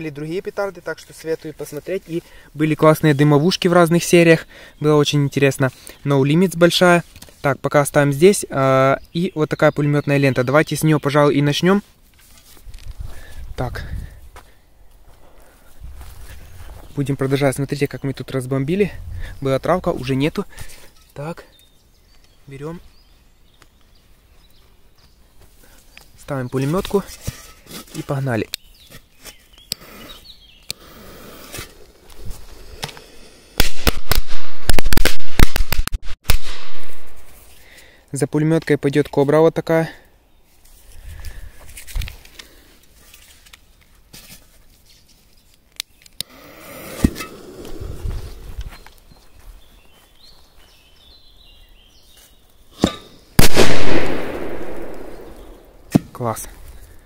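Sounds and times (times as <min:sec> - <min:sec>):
firecracker crack: 0:32.8 - 0:37.4, 0:52.8 - 0:56.0
loud firecracker bang with echo: 0:53.4 - 0:55.5.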